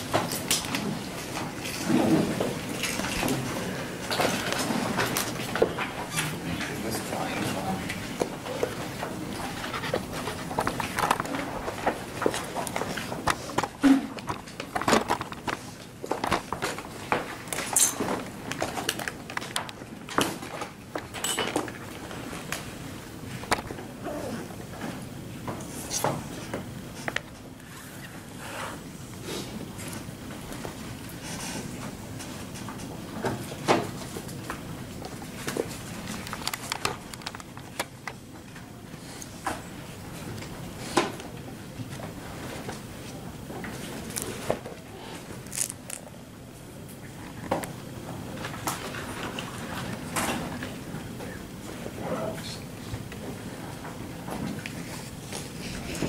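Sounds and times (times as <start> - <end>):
room noise: 0.0 - 56.0
camera being handled: 36.1 - 38.2.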